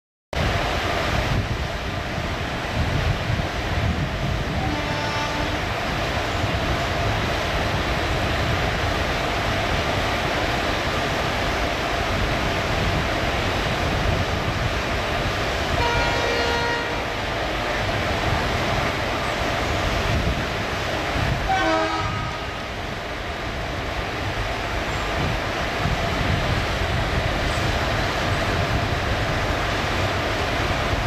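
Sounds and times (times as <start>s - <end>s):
diesel locomotive engine rumble: 0.4s - 31.0s
rail noise: 0.4s - 31.0s
train horn blasts: 4.5s - 5.8s, 15.7s - 17.2s, 21.4s - 22.6s.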